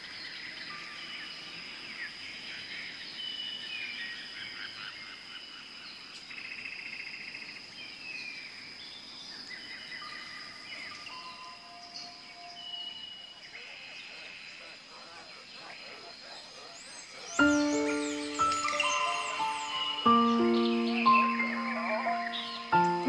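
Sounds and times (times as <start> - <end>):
birds whistling and chirping: 17.3 - 23.0
high-pitched insect drone: 17.4 - 23.0.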